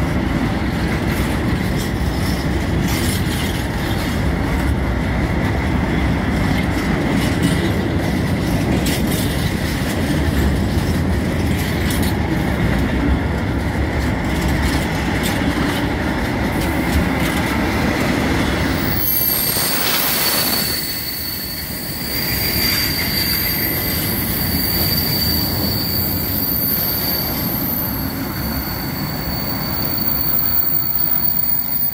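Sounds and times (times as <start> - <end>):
train wheels rumbling on rails: 0.0 - 31.9
high wheel squeal: 18.8 - 31.9.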